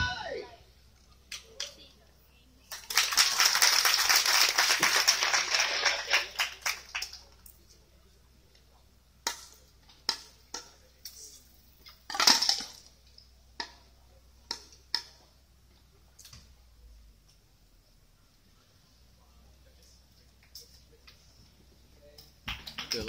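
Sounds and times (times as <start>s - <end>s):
spectators' voices: 0.0s - 11.6s
spectators clapping: 2.7s - 7.4s, 22.5s - 23.0s.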